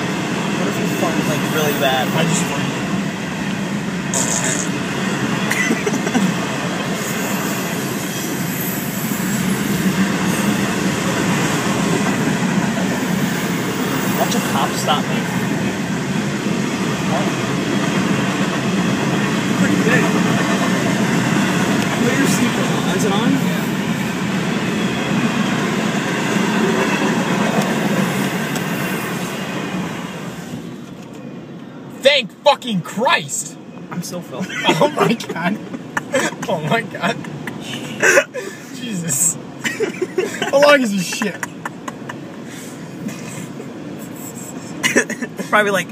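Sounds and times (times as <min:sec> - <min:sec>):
train wheels rumbling on rails: 0:00.0 - 0:30.9.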